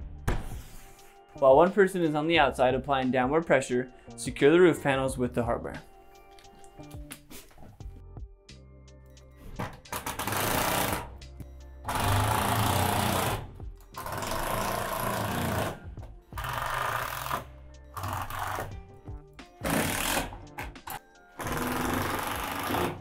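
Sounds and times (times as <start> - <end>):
impact driver hammering screws: 19.6 - 23.0.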